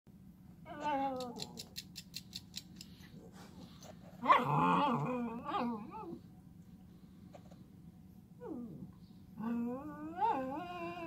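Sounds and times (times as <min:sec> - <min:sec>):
dog howling softly: 0:00.6 - 0:01.6, 0:08.4 - 0:11.0.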